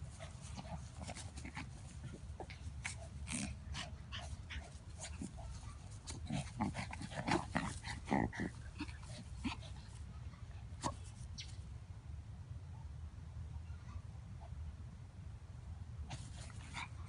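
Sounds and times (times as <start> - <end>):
dogs snuffling and grunting: 0.0 - 10.1.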